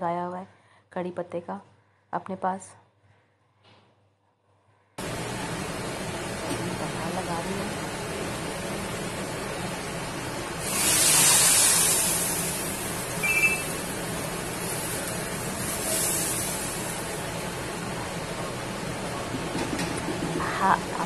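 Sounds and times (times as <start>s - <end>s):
hot oil sizzling: 7.4s - 19.1s.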